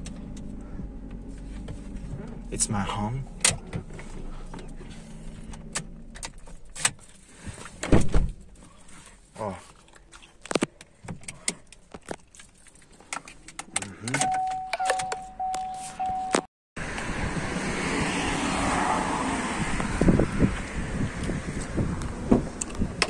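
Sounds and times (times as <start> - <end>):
car warning chime beeping: 14.2 - 16.5.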